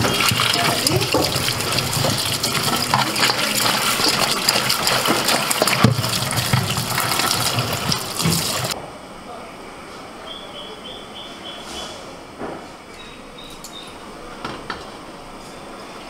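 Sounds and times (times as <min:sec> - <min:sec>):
gourds knocking against steel: 0:00.0 - 0:08.8
hands rubbing vegetables: 0:00.0 - 0:08.8
tap water running: 0:00.0 - 0:08.8.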